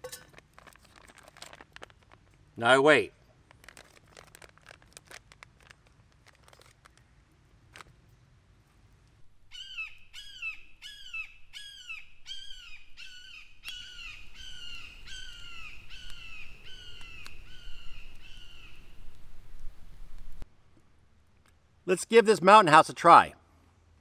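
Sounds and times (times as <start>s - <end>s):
bird calling in downward-slurring notes: 9.5s - 19.1s.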